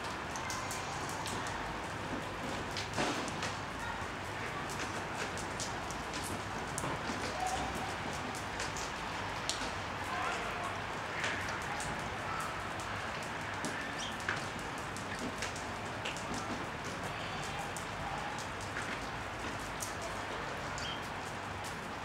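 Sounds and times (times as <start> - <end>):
rain falling on leaves: 0.0 - 22.0
sharp water drips: 0.0 - 22.0
sparrow chirps: 20.8 - 21.0.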